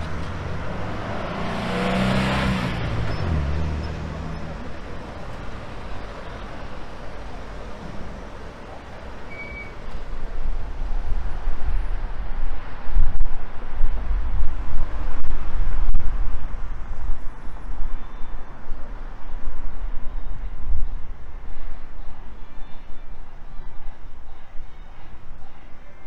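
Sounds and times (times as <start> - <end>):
traffic driving past: 0.0 - 19.2.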